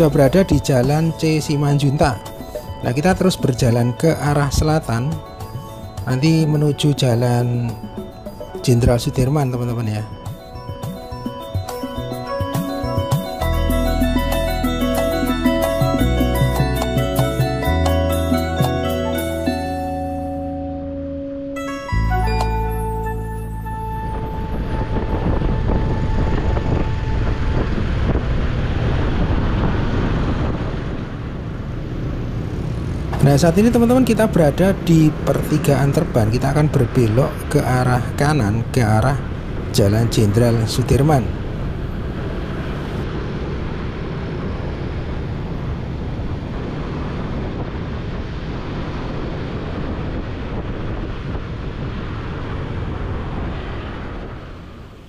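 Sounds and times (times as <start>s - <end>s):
road and traffic noise: 10.5s - 55.0s
wind buffeting microphone: 24.0s - 55.0s.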